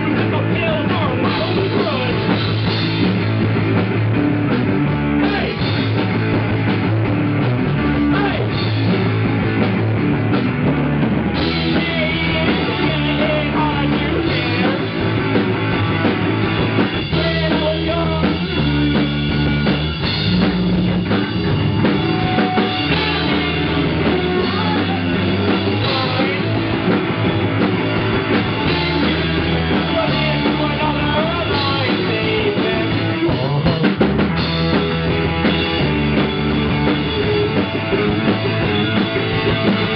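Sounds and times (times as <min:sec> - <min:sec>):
drum kit: 0:00.0 - 0:39.9
electric bass: 0:00.0 - 0:39.9
electric guitar: 0:00.0 - 0:39.9
person singing: 0:11.4 - 0:15.0, 0:17.1 - 0:18.6, 0:22.2 - 0:27.0, 0:28.5 - 0:34.1.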